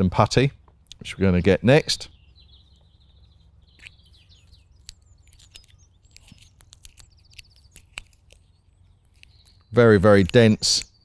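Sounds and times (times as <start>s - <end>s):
songbird trilling: 0.9s - 11.0s
faint clicks and ticks: 3.8s - 11.0s.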